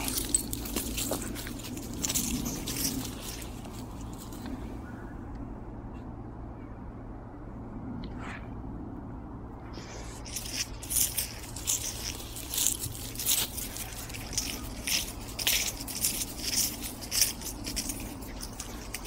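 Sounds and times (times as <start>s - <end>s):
footsteps crunching dry leaves: 0.0s - 4.6s, 9.8s - 19.0s.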